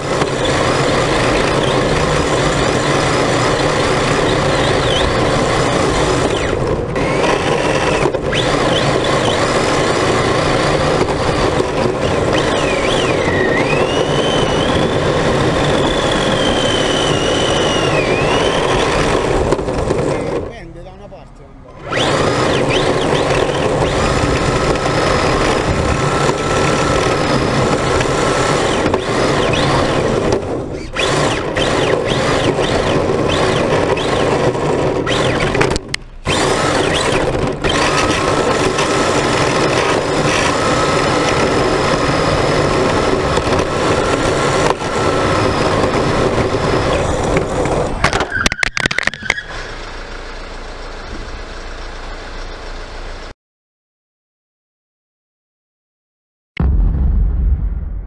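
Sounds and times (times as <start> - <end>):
rc car motor whining: 0.0 - 20.5, 21.7 - 51.9
toy car crashing and clattering: 21.9 - 49.6.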